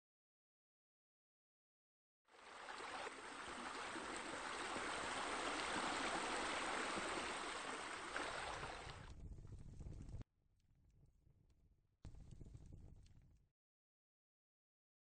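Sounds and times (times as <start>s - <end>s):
fountain water trickling: 2.4s - 9.0s.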